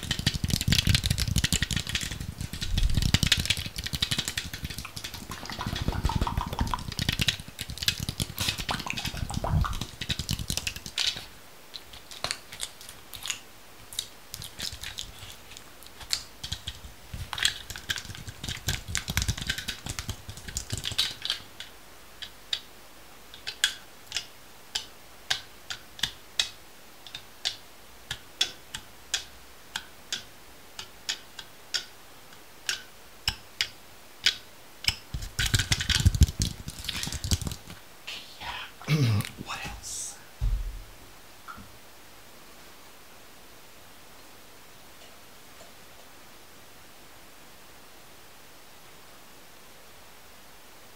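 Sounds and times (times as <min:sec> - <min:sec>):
sharp clicks and taps: 0:00.0 - 0:13.4, 0:32.6 - 0:37.8.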